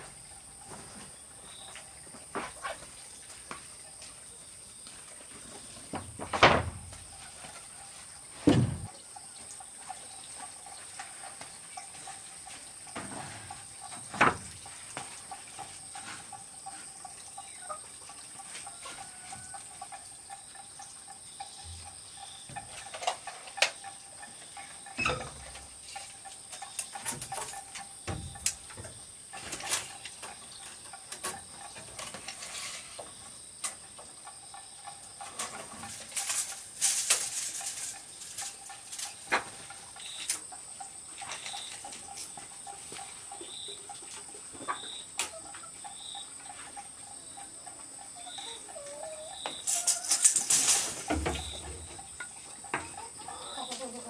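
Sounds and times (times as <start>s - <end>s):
wooden boards knocking on floor: 8.4s - 8.9s.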